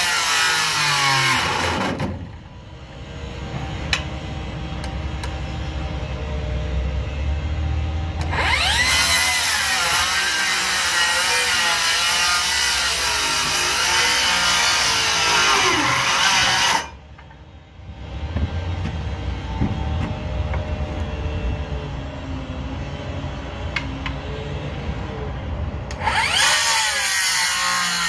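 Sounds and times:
power saw cutting lumber: 0:00.0 - 0:02.2, 0:08.2 - 0:17.0, 0:25.9 - 0:28.0.

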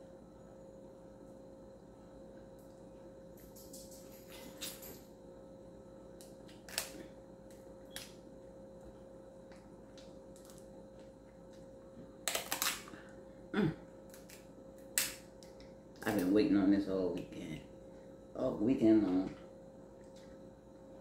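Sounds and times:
crab shells cracking: 0:06.2 - 0:08.2, 0:10.0 - 0:10.7, 0:12.2 - 0:13.0, 0:14.1 - 0:16.2.

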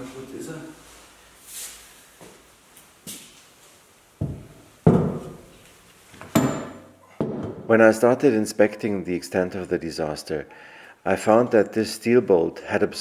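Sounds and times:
heavy metal part thudding: 0:04.2 - 0:05.5, 0:06.2 - 0:07.7
sharp metallic knock: 0:06.3 - 0:07.6.

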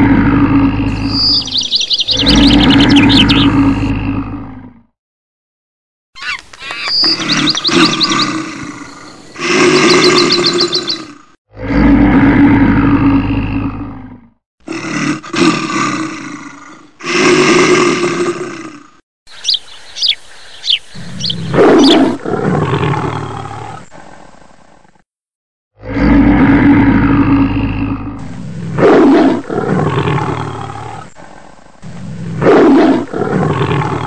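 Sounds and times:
animal roars and growls: 0:00.0 - 0:04.9, 0:06.9 - 0:19.0, 0:20.9 - 0:25.0, 0:25.8 - 0:34.0
high chirping calls: 0:00.9 - 0:03.9, 0:06.2 - 0:11.1, 0:19.3 - 0:22.2.

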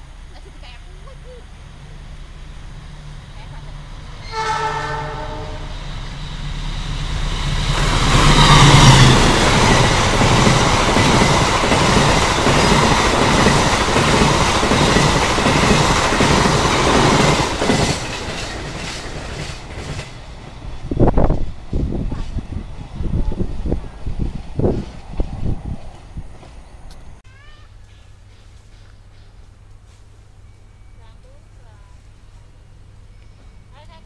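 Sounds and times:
diesel locomotive engine: 0:00.0 - 0:34.0
train wheels clattering on rails: 0:06.0 - 0:22.6.

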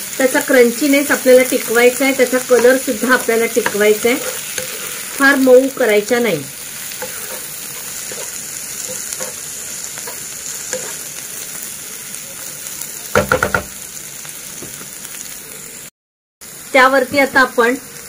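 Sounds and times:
vegetables sizzling in oil: 0:00.0 - 0:18.0
spatula scraping wok: 0:00.8 - 0:11.6
sharp knocks: 0:13.2 - 0:13.7.

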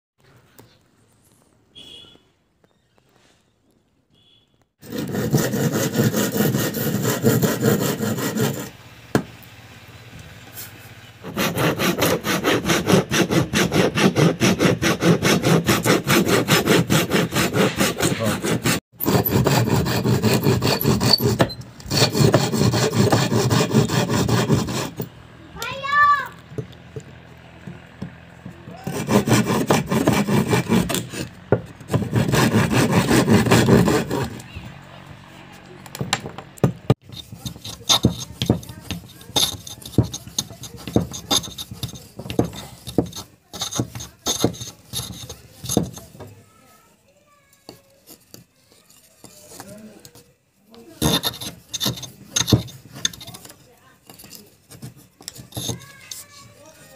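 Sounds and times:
handsaw cutting wood: 0:04.8 - 0:08.8, 0:11.2 - 0:25.1, 0:28.7 - 0:34.5, 0:36.9 - 0:46.3, 0:51.0 - 0:56.9
scraping on wood: 0:04.8 - 0:08.8, 0:10.5 - 0:34.6, 0:36.0 - 0:46.9, 0:47.5 - 0:56.9.

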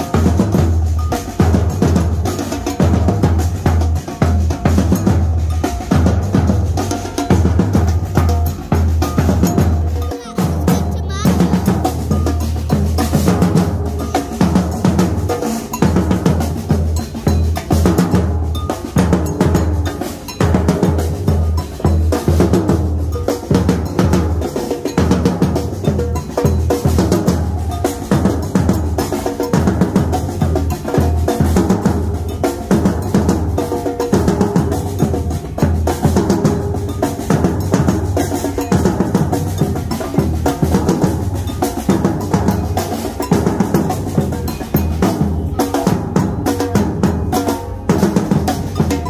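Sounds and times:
drum troupe playing: 0:00.0 - 0:49.0.

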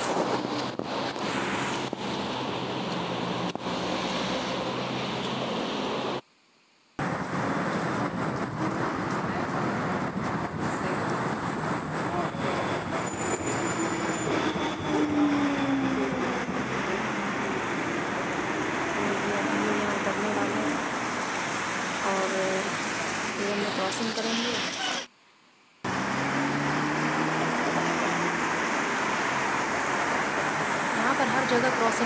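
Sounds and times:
cars hissing on wet road: 0:00.0 - 0:06.2, 0:15.6 - 0:25.1, 0:25.9 - 0:32.0
electric tram humming: 0:00.0 - 0:06.2, 0:07.0 - 0:25.1, 0:25.9 - 0:32.0.

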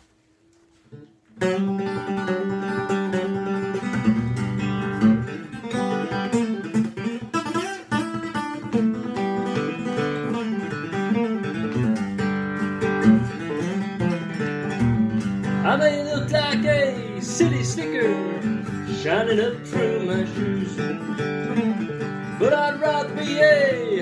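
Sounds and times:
acoustic guitar: 0:00.0 - 0:24.0.

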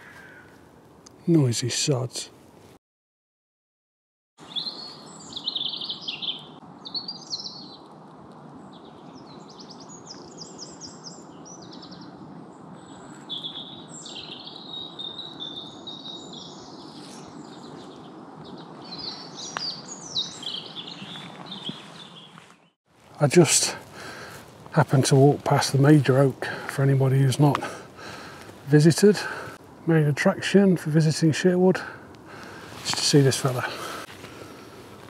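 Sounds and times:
steady background hiss: 0:00.0 - 0:02.7, 0:23.0 - 0:35.0
songbirds chirping and trilling: 0:04.4 - 0:35.0.

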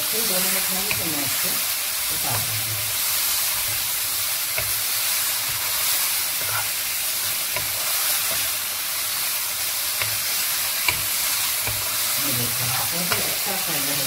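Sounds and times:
chicken sizzling in oil: 0:00.0 - 0:14.0
spatula clicking against pan: 0:00.8 - 0:01.1, 0:09.9 - 0:12.0.

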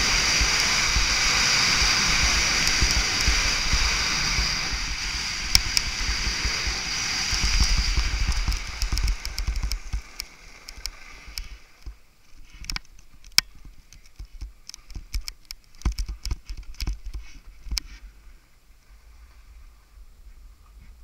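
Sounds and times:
skis hissing over snow: 0:00.0 - 0:09.1
sharp clicks: 0:12.6 - 0:17.8.

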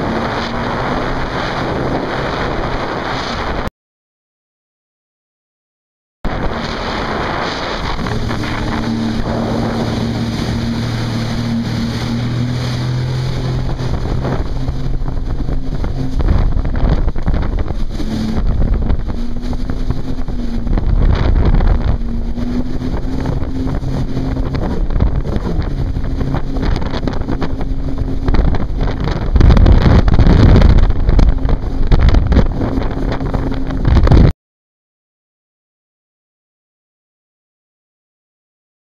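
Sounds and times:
jet ski engine running: 0:00.0 - 0:03.7, 0:06.3 - 0:34.3
wind buffeting microphone: 0:00.0 - 0:03.7, 0:06.3 - 0:34.3
water rushing past: 0:06.3 - 0:34.3.

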